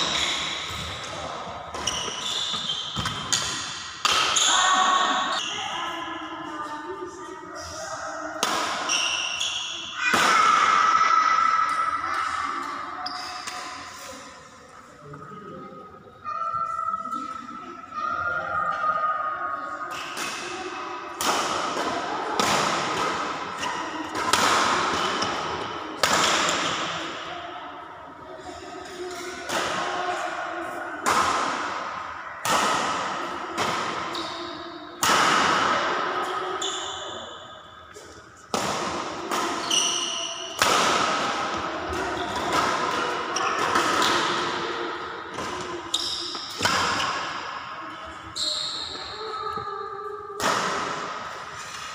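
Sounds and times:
rackets hitting shuttlecock: 0:01.7 - 0:04.5, 0:08.4 - 0:09.4, 0:19.9 - 0:27.3, 0:31.0 - 0:34.4, 0:37.9 - 0:48.0, 0:50.4 - 0:51.9
shoes squeaking on court floor: 0:01.7 - 0:04.6, 0:39.6 - 0:40.6, 0:45.4 - 0:49.8.

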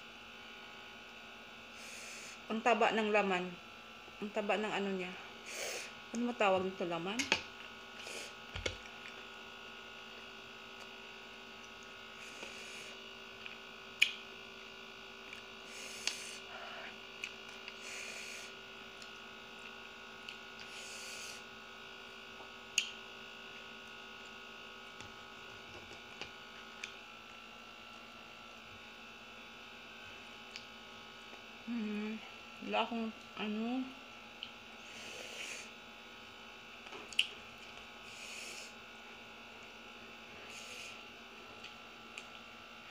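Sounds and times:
faint room hum: 0:00.0 - 0:42.9
chewing and mouth sounds: 0:13.4 - 0:14.2, 0:36.8 - 0:37.9.

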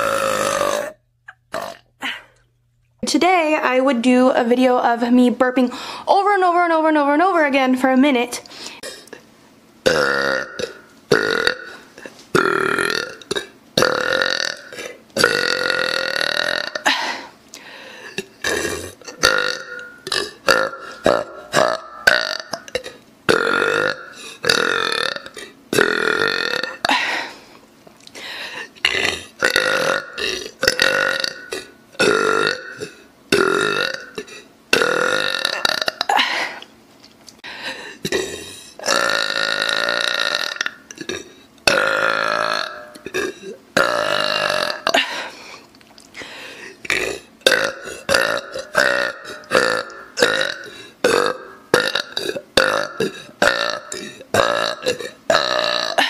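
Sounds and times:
woman burping: 0:00.0 - 0:02.4, 0:09.8 - 0:17.4, 0:18.0 - 0:27.3, 0:28.8 - 0:36.7, 0:37.9 - 0:45.3, 0:46.8 - 0:56.0.

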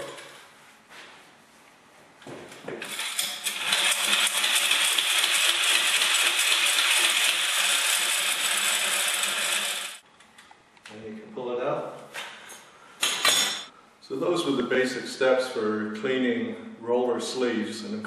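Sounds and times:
paint roller spinner whirring: 0:02.8 - 0:10.0.

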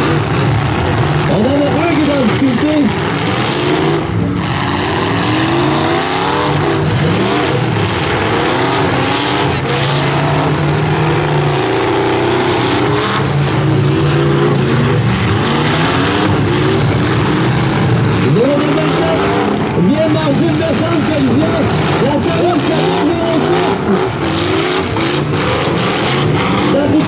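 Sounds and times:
car engines revving: 0:00.0 - 0:27.0.

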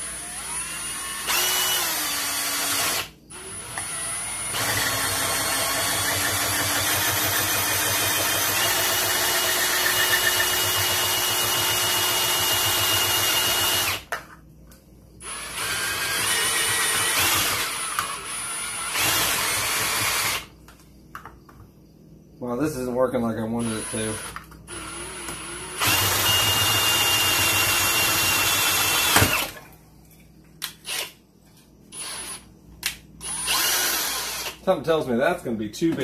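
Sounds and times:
cordless drill whining: 0:00.0 - 0:14.1, 0:15.2 - 0:20.5, 0:23.6 - 0:29.6, 0:30.8 - 0:31.1, 0:31.9 - 0:32.5, 0:33.2 - 0:34.6.

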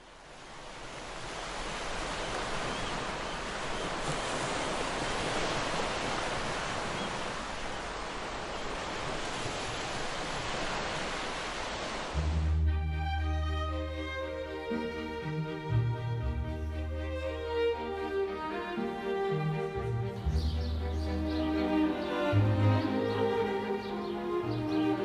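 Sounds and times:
waves breaking on beach: 0:00.0 - 0:12.7.

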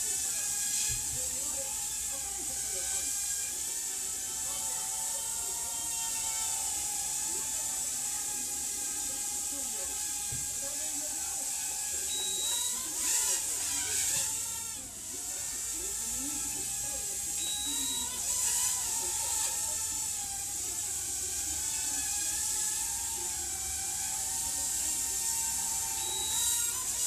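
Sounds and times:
drone propellers buzzing: 0:00.0 - 0:27.0
short high beep: 0:12.1 - 0:12.6.

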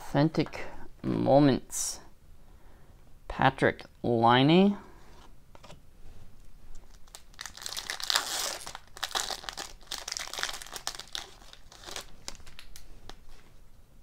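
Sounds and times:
foil wrapper crinkling and tearing: 0:06.9 - 0:13.2.

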